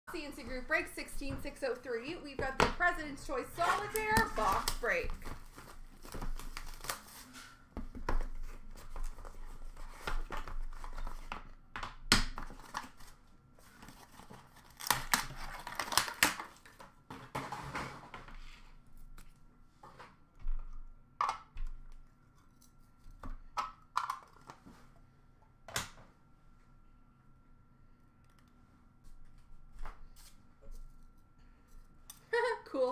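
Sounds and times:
packaging rustling and scraping: 3.4 - 11.5, 12.4 - 20.1
packaging crinkling: 3.6 - 7.3, 12.5 - 16.8.

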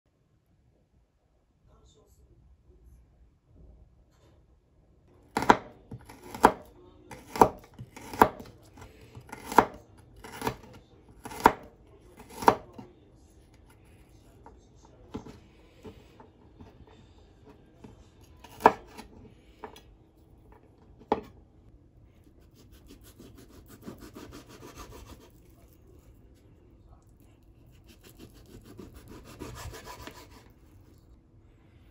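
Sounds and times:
knife chopping on wooden board: 5.3 - 12.8, 18.4 - 19.8, 21.0 - 21.4, 22.5 - 25.4, 27.7 - 30.5
knife sawing through meat: 22.4 - 25.6, 27.7 - 30.6.

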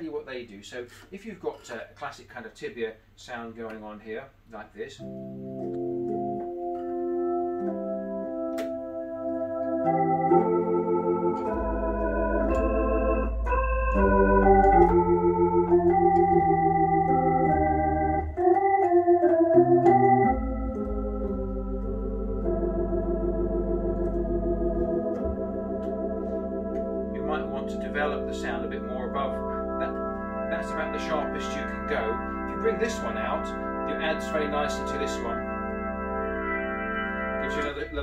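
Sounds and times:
deep organ pedal bass notes: 5.0 - 38.0
organ playing sustained chords: 5.0 - 38.0.

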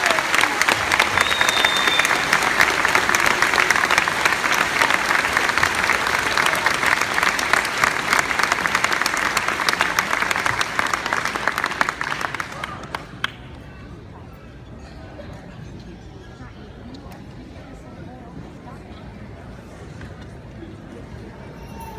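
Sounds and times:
audience applauding: 0.0 - 13.4.

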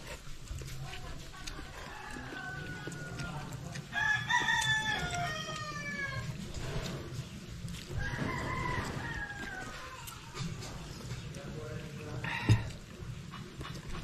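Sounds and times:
roosters crowing: 1.8 - 10.8.

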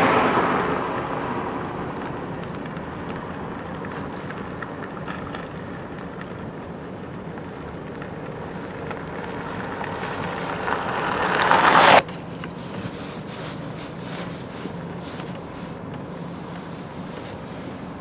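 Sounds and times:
car road and engine noise: 0.0 - 18.0
rushing noise: 8.6 - 12.0.

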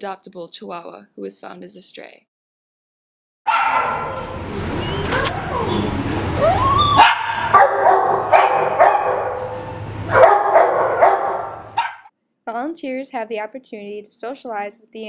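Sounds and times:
dogs barking: 3.5 - 12.1.

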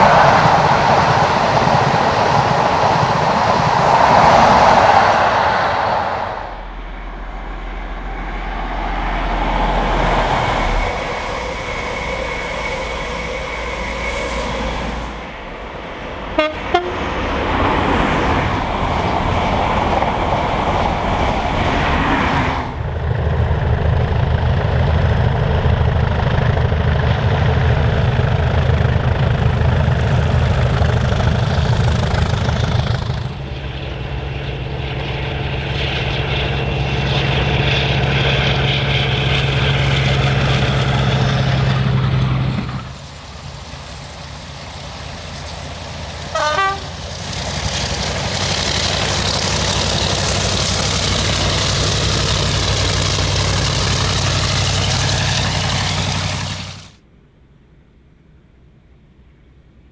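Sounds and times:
diesel locomotive engines: 0.0 - 59.9
train horn toot: 16.3 - 17.4, 46.3 - 47.0.

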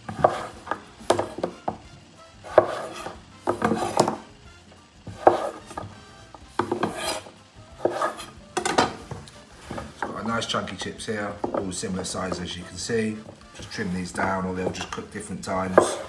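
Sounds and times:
knife cutting potato: 0.0 - 4.4, 5.0 - 16.0
knife knocking on wooden board: 0.1 - 1.8, 6.6 - 7.0, 7.8 - 9.2.

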